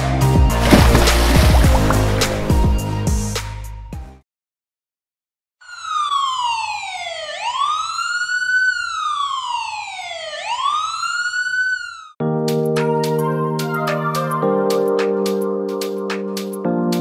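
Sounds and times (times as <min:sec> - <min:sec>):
siren wailing: 0:05.6 - 0:12.2.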